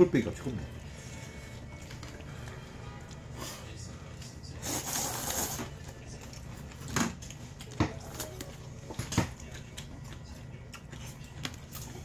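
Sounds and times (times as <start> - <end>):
person slurping noodles: 4.6 - 5.7.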